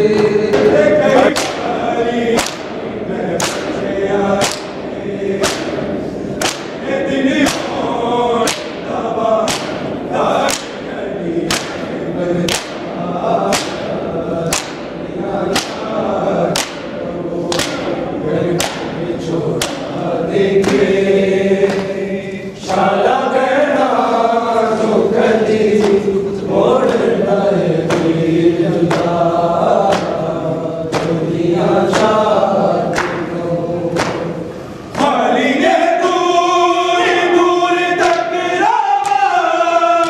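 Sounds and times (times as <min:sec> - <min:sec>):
men chanting in unison: 0:00.0 - 0:40.0
hands slapping bare chests: 0:01.3 - 0:01.7, 0:02.4 - 0:02.8, 0:03.4 - 0:03.7, 0:04.4 - 0:04.8, 0:05.4 - 0:05.8, 0:06.4 - 0:06.8, 0:08.4 - 0:08.8, 0:09.4 - 0:09.8, 0:10.4 - 0:10.8, 0:11.5 - 0:11.9, 0:12.5 - 0:12.9, 0:13.5 - 0:13.9, 0:14.5 - 0:14.9, 0:15.5 - 0:15.9, 0:16.5 - 0:16.9, 0:17.5 - 0:18.0, 0:18.6 - 0:18.9, 0:20.6 - 0:20.9, 0:21.7 - 0:22.0, 0:29.8 - 0:30.2, 0:30.9 - 0:31.2, 0:32.9 - 0:33.2.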